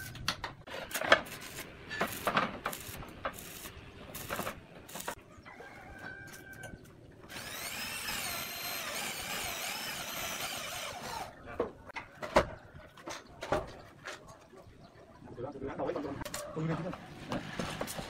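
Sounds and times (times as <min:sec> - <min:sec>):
cordless drill whining: 0:07.3 - 0:11.4.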